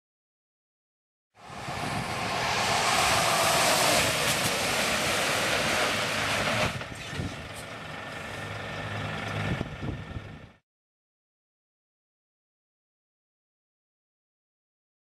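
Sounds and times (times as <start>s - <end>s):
truck brakes hissing: 1.4s - 8.7s
diesel engine idling: 1.4s - 10.6s.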